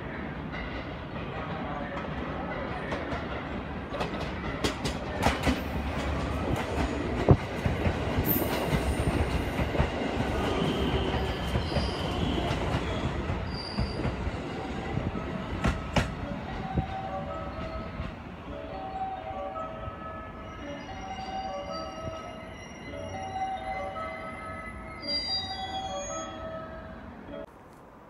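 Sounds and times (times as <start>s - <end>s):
high-pitched brake squeal: 10.6s - 14.1s, 20.4s - 23.6s, 24.3s - 26.9s.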